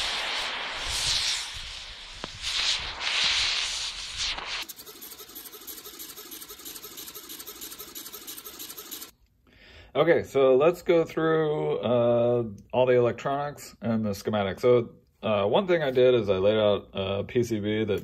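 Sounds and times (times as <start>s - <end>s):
rushing hiss: 0.0s - 4.6s
servos ticking whir: 4.6s - 9.1s.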